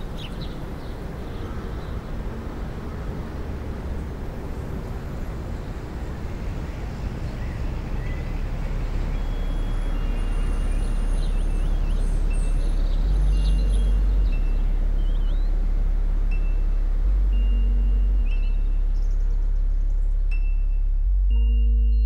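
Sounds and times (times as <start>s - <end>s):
low dense rumble: 2.1s - 22.0s
faint bird chirps: 9.0s - 15.6s.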